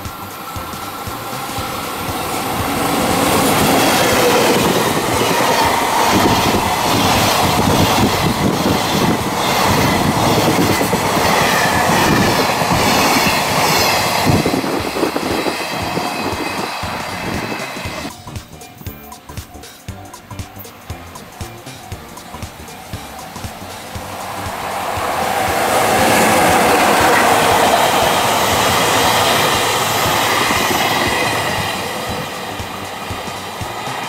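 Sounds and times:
wagon wheels clattering over rail joints: 0.0 - 18.2
electric locomotive passing: 0.0 - 34.0.

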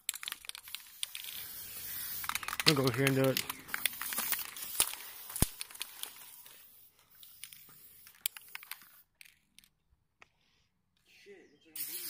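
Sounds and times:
crackling handling noise: 0.0 - 10.3
sharp clicks: 2.2 - 6.1.

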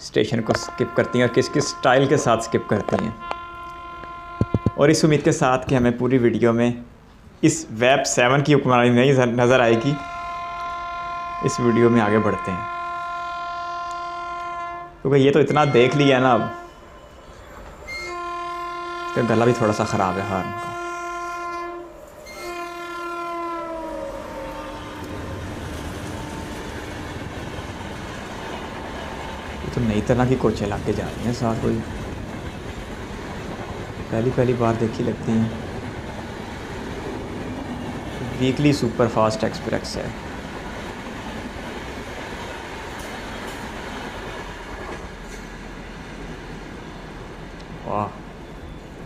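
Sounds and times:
train coaches rumbling past: 0.0 - 49.0
locomotive horn blast: 0.4 - 5.3, 9.6 - 17.0, 17.9 - 29.7, 34.4 - 35.3
wheels clattering over rails: 25.0 - 46.8.

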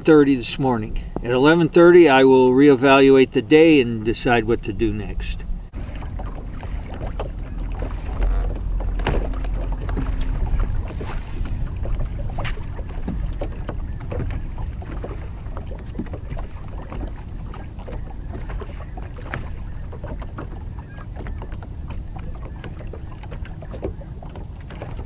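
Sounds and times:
waves lapping against hull: 0.0 - 25.0
wind buffeting microphone: 0.0 - 25.0
light clicks and knocks: 6.6 - 17.2.

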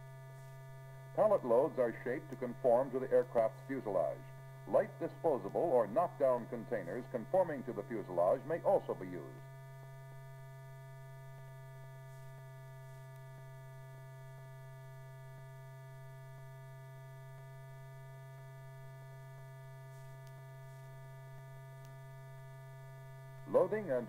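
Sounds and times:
electrical hum: 0.0 - 24.0
faint steady tones: 0.0 - 24.0
faint ticks: 19.9 - 21.0, 21.8 - 22.0.

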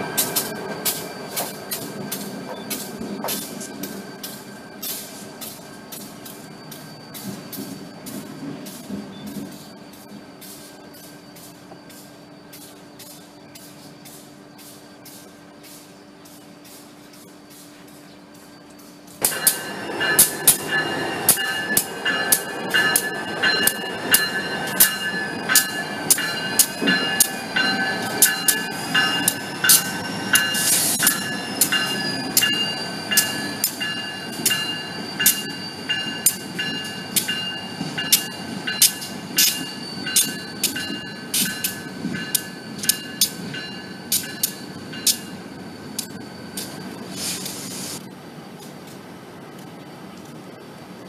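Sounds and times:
diesel locomotive running: 0.0 - 51.0
high squeal: 18.2 - 48.1
bell ringing: 19.3 - 47.0.

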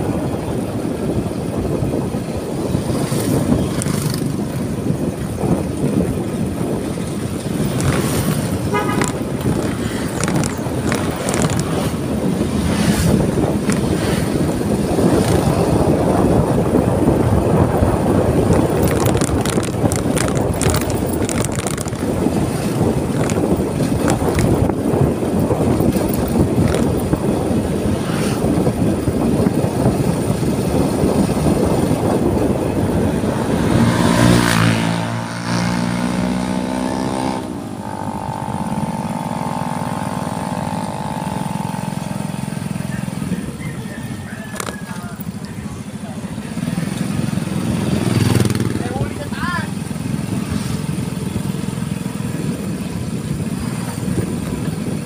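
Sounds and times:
vehicle road rumble: 0.0 - 55.0
wind on microphone: 0.0 - 55.0
sharp clicks and rattles: 7.3 - 12.1, 13.5 - 14.1, 18.6 - 24.8, 25.7 - 27.2, 44.5 - 45.6.

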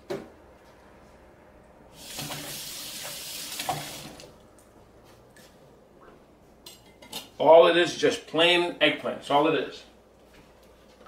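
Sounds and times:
water running into sink: 1.9 - 4.4.

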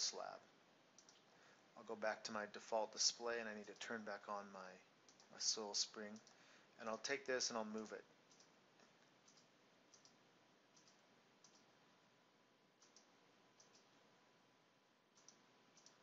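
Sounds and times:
low background hiss: 0.0 - 16.0
faint computer mouse clicks: 1.0 - 1.3, 5.1 - 5.3, 6.1 - 6.4, 7.8 - 10.2, 10.8 - 11.7, 12.8 - 13.9, 15.2 - 16.0.

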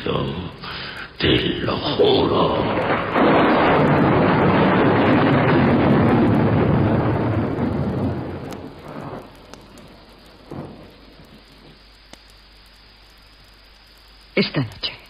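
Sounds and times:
thunder rumbling: 0.0 - 11.9
rain: 0.0 - 15.0.

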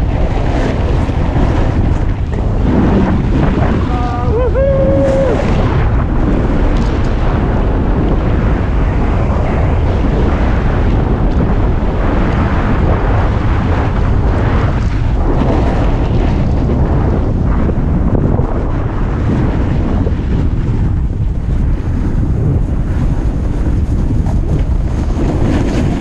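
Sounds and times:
snowboard scraping over snow: 0.0 - 26.0
wind buffeting microphone: 0.0 - 26.0.

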